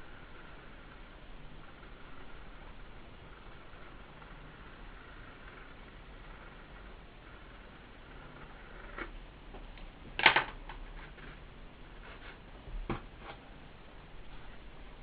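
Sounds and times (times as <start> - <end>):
knocks and scrapes on speaker: 12.0 - 13.4.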